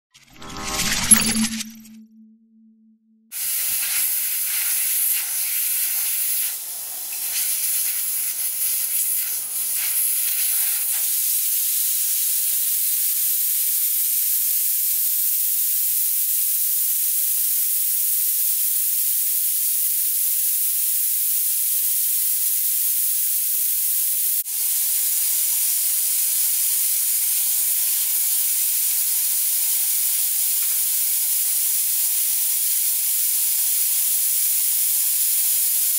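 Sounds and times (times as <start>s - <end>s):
compressed air hissing: 3.4s - 13.5s.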